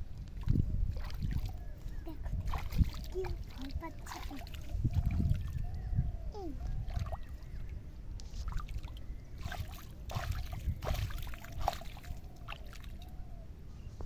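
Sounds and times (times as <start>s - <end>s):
hand splashing pond water: 0.4s - 5.6s, 8.4s - 13.1s.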